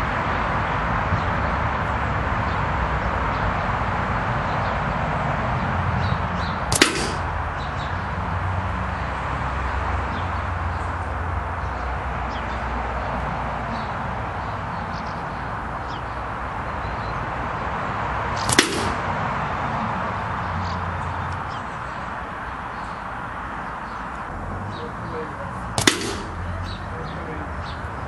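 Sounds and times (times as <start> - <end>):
air rifle shot: 6.6 - 8.0, 18.4 - 19.3, 25.8 - 26.7.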